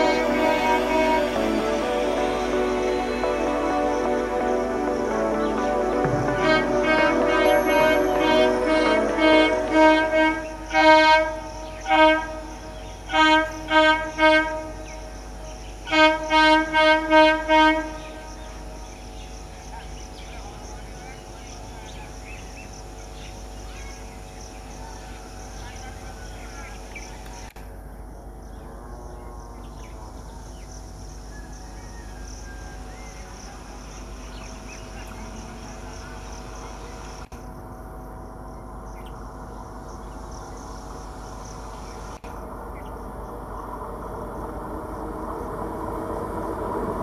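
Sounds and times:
electric train horn toots: 0.0 - 19.0
electric train hum and rumble: 0.0 - 47.0
high pulsing insect buzz: 0.0 - 47.0
faint bird chirps: 28.5 - 37.2.

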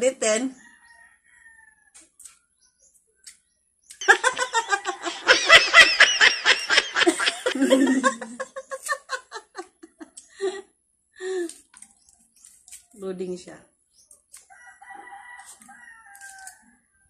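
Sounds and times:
women laughing: 4.0 - 10.6.

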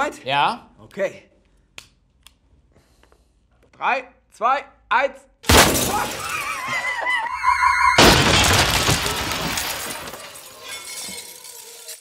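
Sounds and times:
falling glass: 5.5 - 7.0, 7.9 - 12.0
glass shattering crash: 5.5 - 7.0, 7.9 - 12.0
cannon bang: 8.0 - 9.2.

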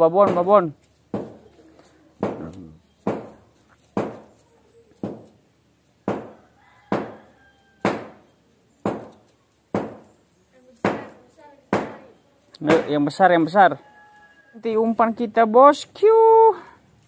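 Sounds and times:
sharp knocks: 1.1 - 1.4, 2.2 - 4.3, 5.0 - 5.4, 6.0 - 7.2, 7.8 - 8.2, 8.8 - 10.1, 10.8 - 12.0, 12.6 - 13.0.

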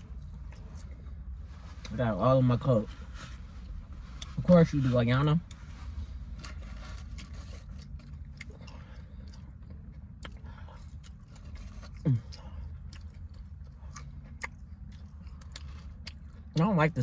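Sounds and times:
low hum in car cabin: 0.0 - 17.0
person chewing fries: 5.3 - 17.0.

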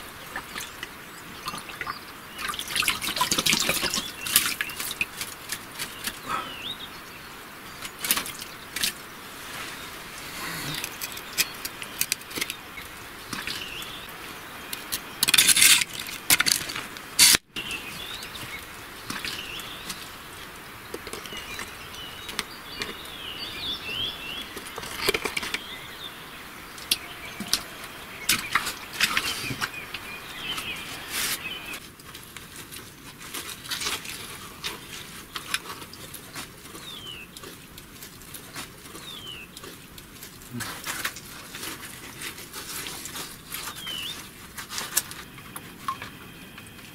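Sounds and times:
birds chirping: 0.0 - 31.8, 34.1 - 46.9
squelching and splashing in mud: 0.2 - 6.5, 26.9 - 45.1.

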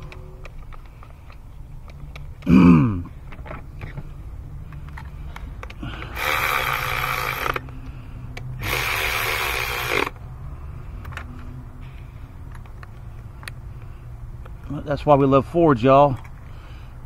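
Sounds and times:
cordless electric ratchet running: 6.0 - 7.7, 8.6 - 10.2.

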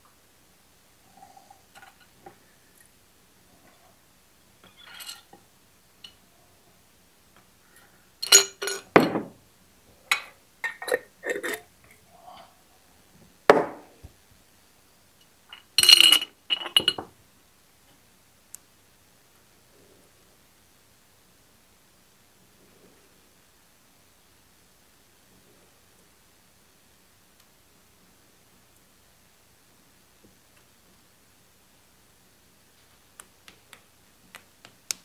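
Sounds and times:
metal parts clinking in glass jar: 4.6 - 5.3, 8.2 - 8.9, 15.5 - 17.0.

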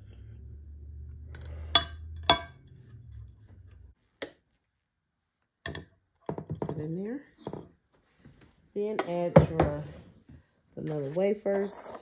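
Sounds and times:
low steady hum: 0.0 - 4.1
metal spoon clinking on dishware: 1.6 - 2.7.

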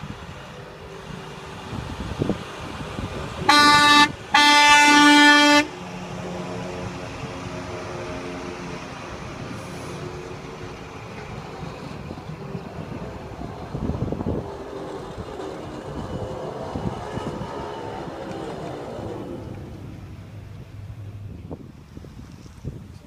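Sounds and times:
vehicle engine passing: 0.2 - 22.7
truck horn blasts: 3.4 - 5.8.

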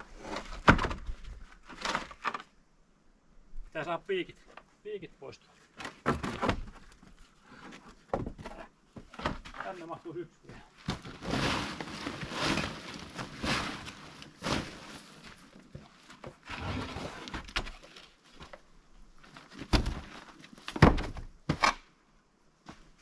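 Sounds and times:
scraping and rustling objects: 10.7 - 18.6.

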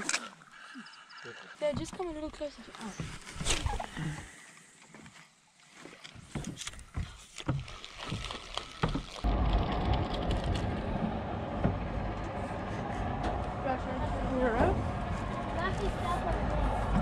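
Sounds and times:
boat motor running: 9.3 - 17.0.

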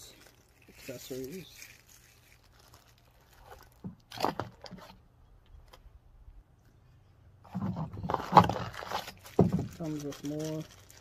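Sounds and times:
plastic bags crinkling: 0.0 - 4.9, 8.0 - 11.0.

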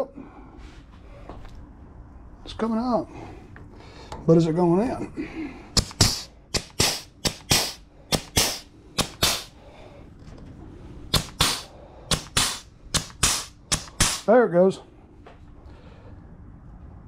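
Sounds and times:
pneumatic grease gun popping: 5.8 - 9.5, 11.1 - 14.3.

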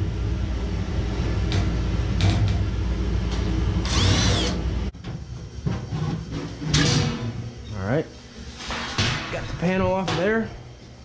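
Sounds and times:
electric motor whirring hum: 3.7 - 4.9.

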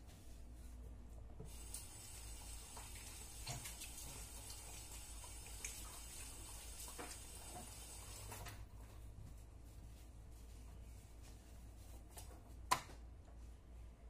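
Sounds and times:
tap water running: 1.4 - 8.7
hands washing with soap: 1.5 - 12.6.

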